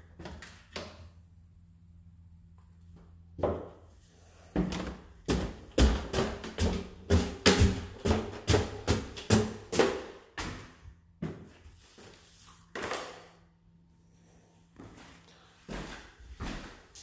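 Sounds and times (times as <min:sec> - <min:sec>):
footsteps on wooden stairs: 0:04.6 - 0:11.6, 0:15.7 - 0:16.8.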